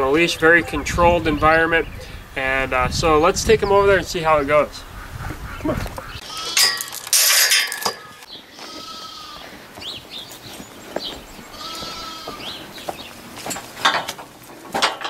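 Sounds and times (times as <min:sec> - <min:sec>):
farm animal bleating: 0:06.1 - 0:06.9, 0:08.0 - 0:09.6, 0:11.4 - 0:12.8.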